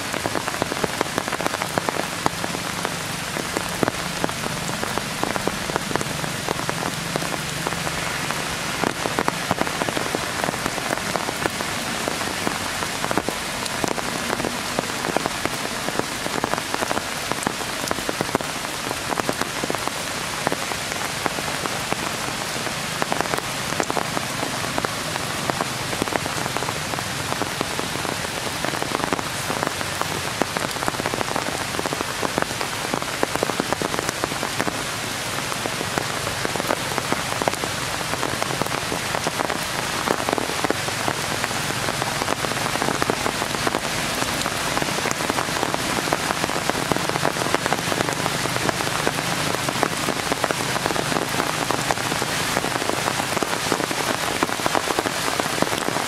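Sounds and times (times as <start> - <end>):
rain falling on foliage: 0.0 - 56.0.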